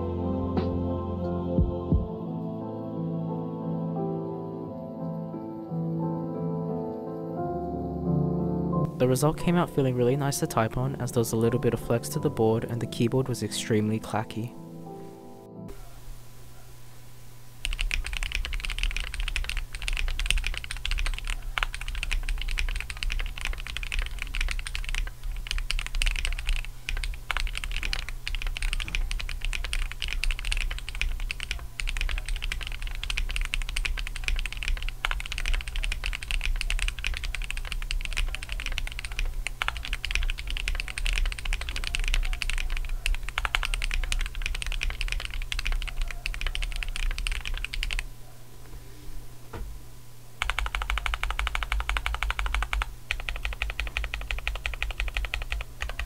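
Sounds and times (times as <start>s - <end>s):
fast typing on mechanical keyboard: 17.6s - 48.0s, 50.4s - 56.0s.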